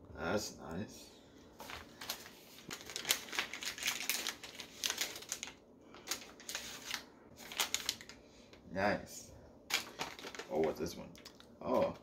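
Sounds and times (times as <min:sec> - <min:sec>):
wrapping paper crinkling and tearing: 0:01.6 - 0:08.2, 0:09.7 - 0:11.8.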